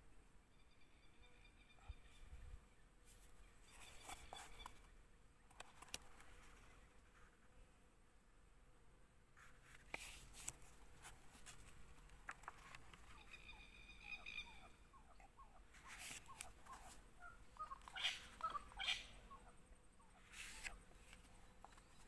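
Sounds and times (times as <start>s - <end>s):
faint bird calls and chirps: 0.0s - 7.4s, 10.0s - 22.0s
paper pages rustling: 3.7s - 4.8s, 9.4s - 13.2s, 15.7s - 17.0s, 20.3s - 22.0s.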